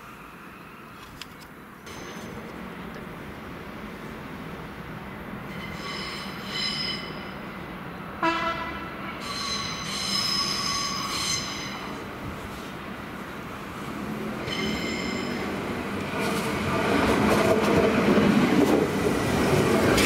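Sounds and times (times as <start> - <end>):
train wheels squealing: 5.5 - 7.4, 9.1 - 12.0, 14.4 - 15.6
train horn blast: 8.2 - 9.0.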